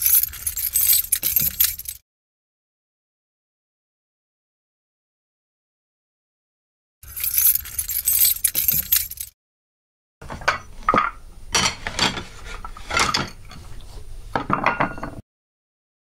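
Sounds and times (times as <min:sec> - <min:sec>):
keys jangling: 0:00.0 - 0:02.0, 0:07.0 - 0:09.3
dishes clattering: 0:10.2 - 0:13.6, 0:14.4 - 0:15.2.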